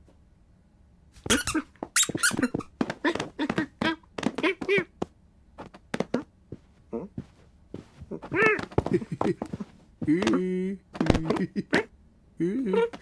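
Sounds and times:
foley thumps and scrabbles: 0:01.2 - 0:11.7
cartoon cat chirps and squeaks: 0:01.3 - 0:04.8.

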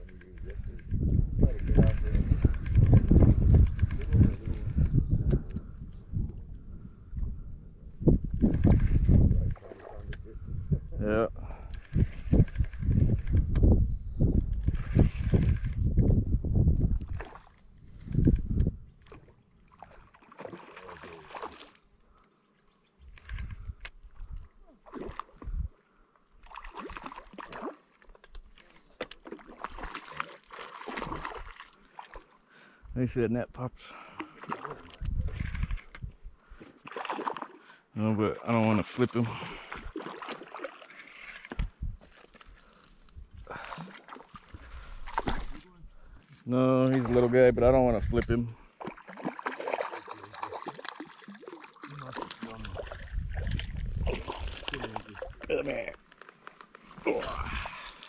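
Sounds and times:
fish splashing at water surface: 0:19.0 - 0:21.8, 0:24.7 - 0:25.5, 0:26.4 - 0:32.5, 0:34.0 - 0:35.9, 0:36.6 - 0:37.7, 0:39.4 - 0:42.6, 0:43.5 - 0:45.7, 0:48.6 - 0:55.5
clicks and rustling handling noise: 0:54.6 - 0:57.0.

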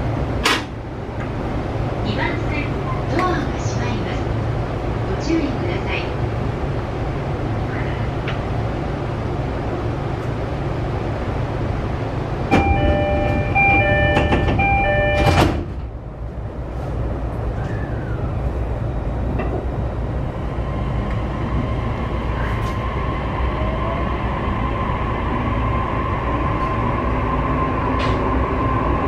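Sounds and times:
door-closing chime: 0:12.5 - 0:15.6
sliding doors shutting: 0:12.5 - 0:15.9
low rumble: 0:15.8 - 0:29.0.

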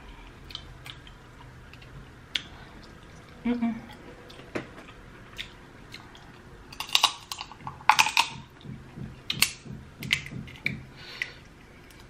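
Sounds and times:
crab shell cracking by hand: 0:06.7 - 0:08.4.

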